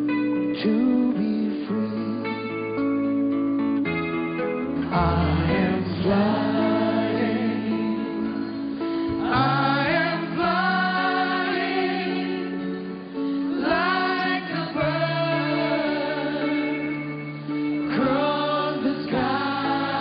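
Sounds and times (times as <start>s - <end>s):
choir singing: 4.8s - 8.6s, 9.2s - 20.0s
voices singing with vibrato: 4.8s - 20.0s.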